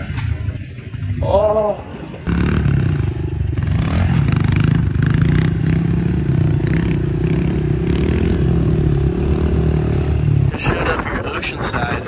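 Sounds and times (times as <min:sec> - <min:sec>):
bike rattling: 0:00.0 - 0:12.0
dirt bike engine running: 0:00.0 - 0:12.0.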